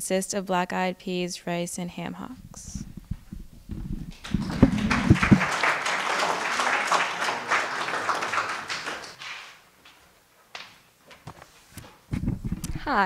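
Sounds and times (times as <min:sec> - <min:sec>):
audience applauding: 0:04.1 - 0:09.6.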